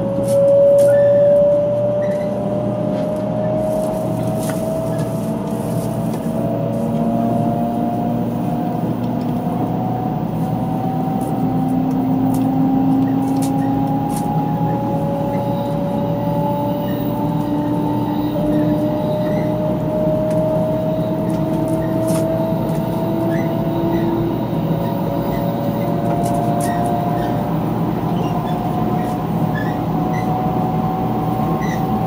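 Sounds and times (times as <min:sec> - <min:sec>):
train traction motor whine: 0:00.0 - 0:32.0
train wheel and running noise: 0:00.0 - 0:32.0.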